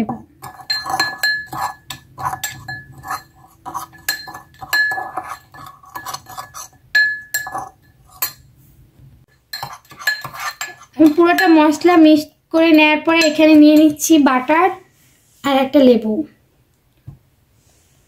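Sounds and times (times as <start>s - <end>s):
teaspoon clinking against ceramic bowl: 0.4s - 8.5s, 9.3s - 11.8s, 12.7s - 14.0s.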